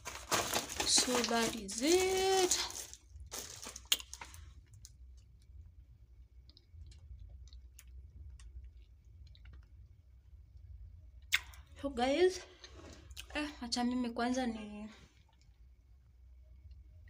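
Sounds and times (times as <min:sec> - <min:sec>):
plastic food packets rustling: 0:00.0 - 0:05.2
low steady hum: 0:00.0 - 0:17.0.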